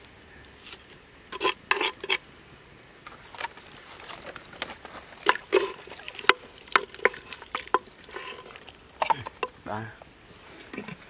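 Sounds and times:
wooden spoon knocking clay pot: 0:05.2 - 0:09.6.

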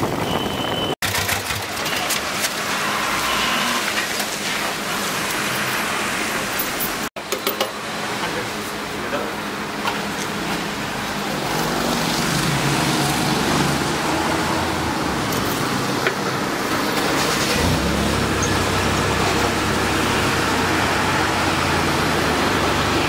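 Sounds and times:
road traffic rushing: 0:00.0 - 0:23.0.

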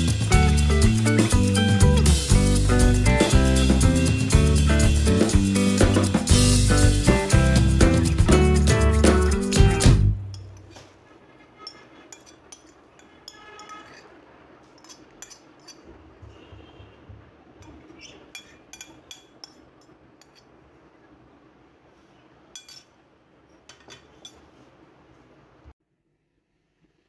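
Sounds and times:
metal spoon clinking on china: 0:10.3 - 0:10.7, 0:11.6 - 0:14.1, 0:14.8 - 0:15.8, 0:17.6 - 0:20.5, 0:22.5 - 0:23.0.

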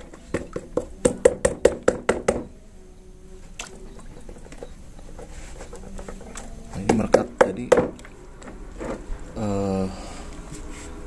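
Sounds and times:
water sloshing in bucket: 0:03.4 - 0:09.3.

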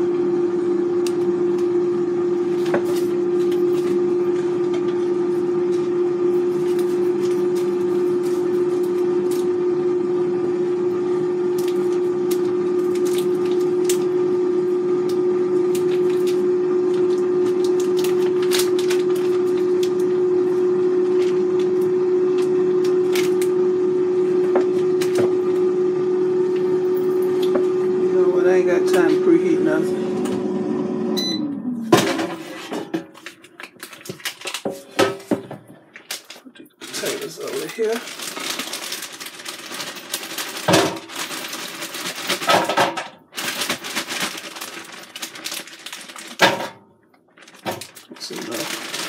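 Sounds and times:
air fryer humming: 0:00.0 - 0:49.0
plastic bag crackling: 0:15.7 - 0:20.0, 0:33.2 - 0:34.7, 0:36.0 - 0:42.7, 0:43.3 - 0:46.7, 0:47.3 - 0:49.0.

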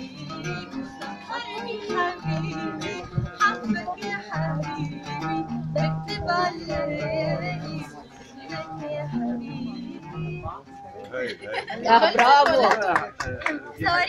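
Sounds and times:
woman singing: 0:00.0 - 0:10.6, 0:13.6 - 0:14.0
oud plucked and strummed: 0:00.0 - 0:13.0.

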